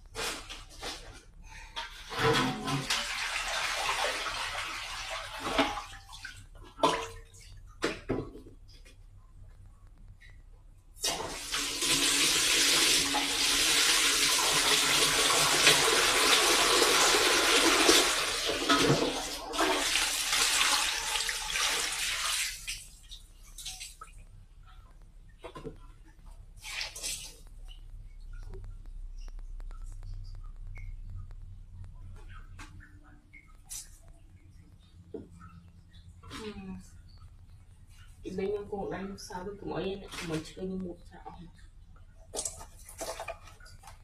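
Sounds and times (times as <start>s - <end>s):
water splashing in a basin: 1.8s - 8.6s, 11.0s - 24.3s, 26.6s - 28.8s, 42.3s - 44.0s.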